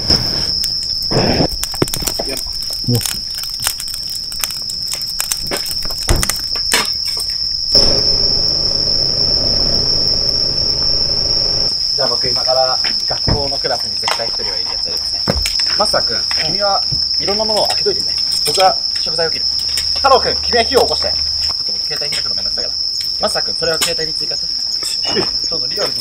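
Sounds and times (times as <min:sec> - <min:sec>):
campfire crackling and popping: 0:00.0 - 0:11.8
night insects trilling: 0:00.0 - 0:26.0
low steady hum: 0:07.7 - 0:11.8.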